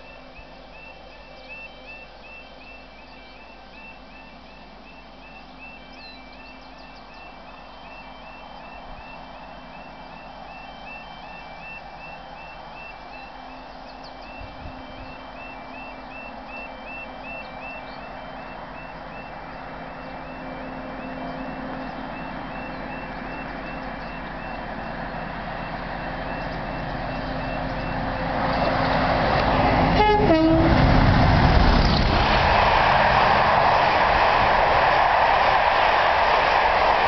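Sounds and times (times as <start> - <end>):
diesel locomotive engine: 0.0 - 37.0
locomotive horn: 29.4 - 31.2.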